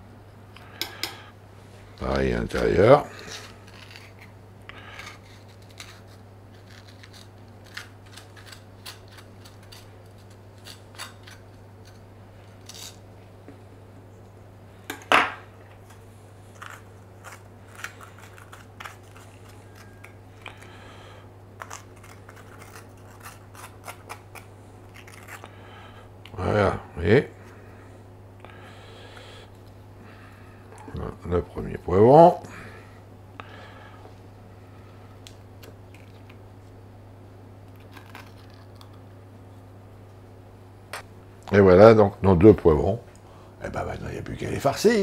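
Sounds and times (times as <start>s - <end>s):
spoon scraping seeds: 2.5s - 13.0s, 15.9s - 20.7s, 21.6s - 25.5s.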